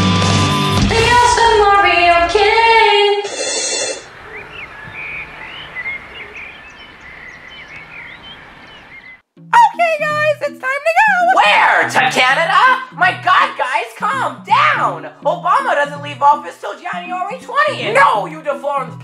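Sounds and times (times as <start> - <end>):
rock theme music: 0.0 - 1.0
steady background hiss: 3.1 - 9.2
birds chirping: 3.6 - 9.2.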